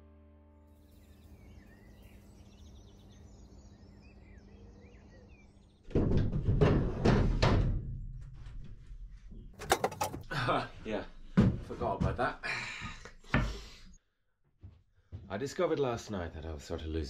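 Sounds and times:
birds chirping: 0:00.8 - 0:05.9
steel doors knocking and banging: 0:09.6 - 0:10.2.

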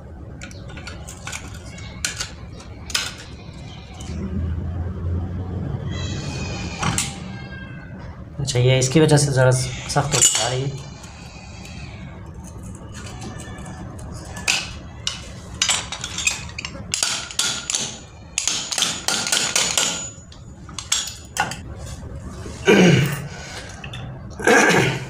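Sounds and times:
sharp metal knocks and clinks: 0:10.1 - 0:10.8, 0:14.4 - 0:21.6.

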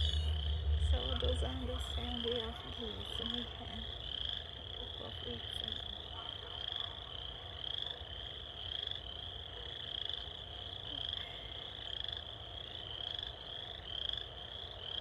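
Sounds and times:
steady low rumble: 0:00.0 - 0:06.2.

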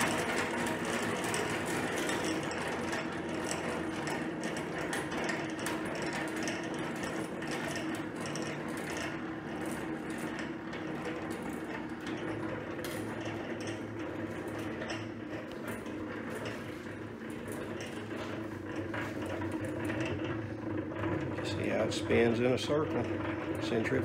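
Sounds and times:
honey extractor motor humming: 0:00.0 - 0:24.0.

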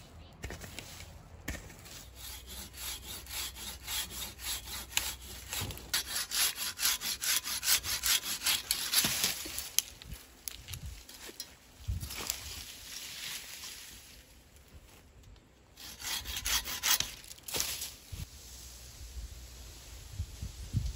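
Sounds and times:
hand saw rasping through wood: 0:01.9 - 0:09.1, 0:15.8 - 0:17.2.

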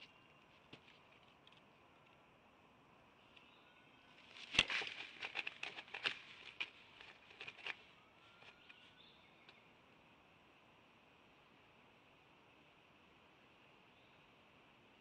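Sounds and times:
twigs rustling and crackling: 0:04.2 - 0:08.8.

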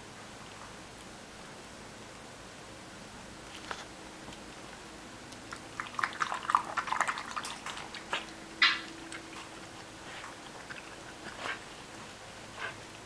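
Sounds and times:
puppies squeaking and yipping: 0:08.0 - 0:11.6
puppy squealing: 0:08.5 - 0:09.0.

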